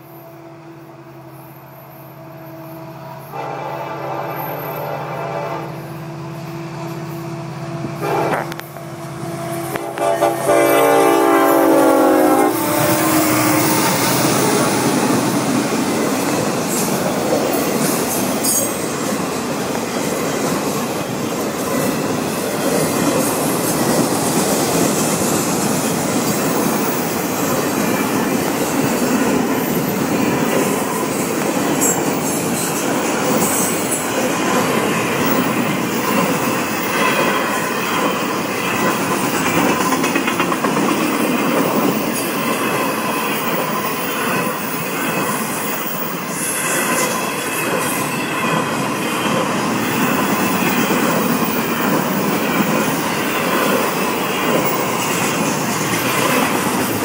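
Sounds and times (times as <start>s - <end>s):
train wheels on rails: 0.0s - 57.0s
train horn chord: 2.8s - 14.3s.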